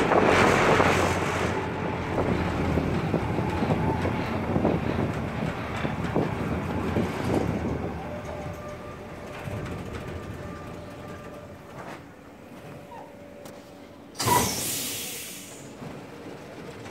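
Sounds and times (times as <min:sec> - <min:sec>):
railway wheels rolling: 0:00.0 - 0:16.9
thin brake squeal: 0:14.2 - 0:15.6.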